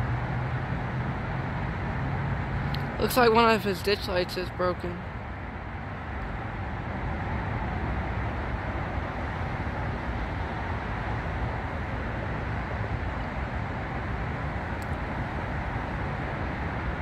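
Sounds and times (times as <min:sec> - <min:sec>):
city traffic: 0:00.0 - 0:17.0
diesel freight train: 0:00.0 - 0:17.0.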